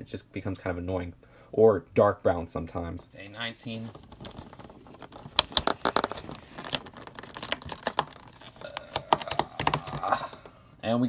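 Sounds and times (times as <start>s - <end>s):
cardboard cracking and tearing: 3.8s - 10.4s.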